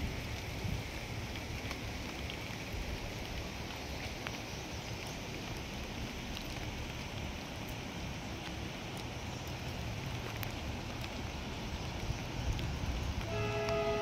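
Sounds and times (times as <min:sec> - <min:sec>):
faint ticks: 0:11.8 - 0:13.8.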